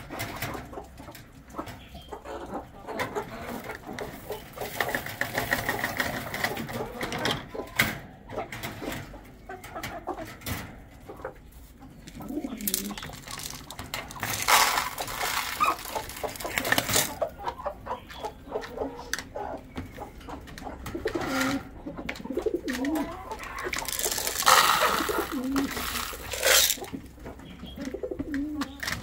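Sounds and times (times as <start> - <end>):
pigeons cooing: 0.0 - 29.0
clicks and rattles: 12.0 - 17.3, 20.2 - 29.0
loud rustling burst: 12.7 - 17.2, 23.8 - 26.9.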